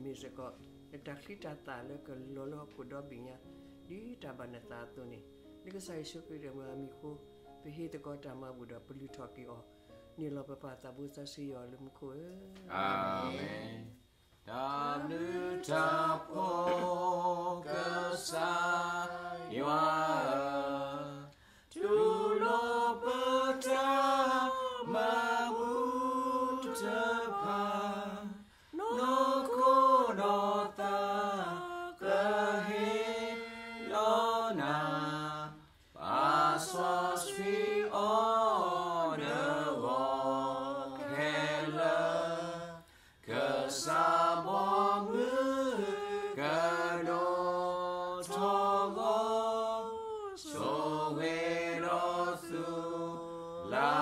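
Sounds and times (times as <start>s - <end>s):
people singing a hymn unaccompanied: 12.5s - 54.0s.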